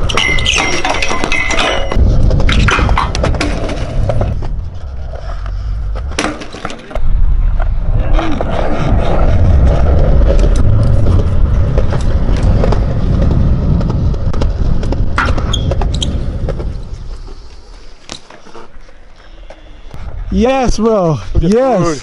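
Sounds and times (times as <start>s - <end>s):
wind rumble on microphone: 0.0s - 6.2s, 7.0s - 17.9s
bike tyres rolling on concrete: 0.0s - 20.0s.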